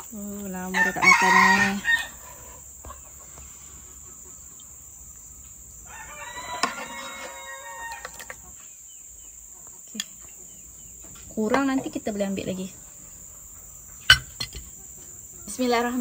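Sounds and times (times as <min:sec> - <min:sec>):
rooster crowing: 0:00.6 - 0:02.7, 0:05.7 - 0:08.4.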